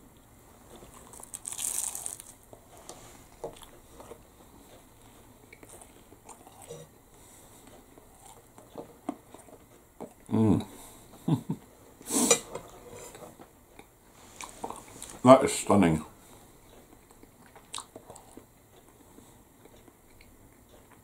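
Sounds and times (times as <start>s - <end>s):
crunchy pastry bite: 0.8s - 2.4s
quiet chewing with mouth clicks: 2.5s - 11.3s, 16.2s - 21.0s.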